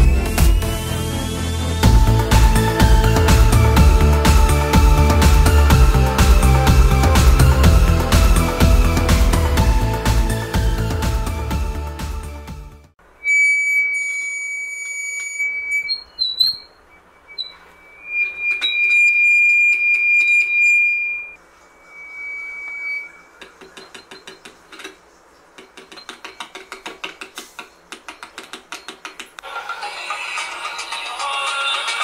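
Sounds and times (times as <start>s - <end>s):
high feedback whistle: 0.0s - 9.9s, 13.0s - 24.4s
rapid clicks from speaker: 23.5s - 29.4s.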